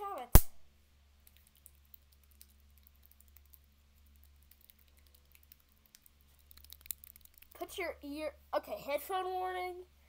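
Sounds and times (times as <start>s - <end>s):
low steady hum: 0.0s - 10.0s
faint small clicks: 1.2s - 7.6s.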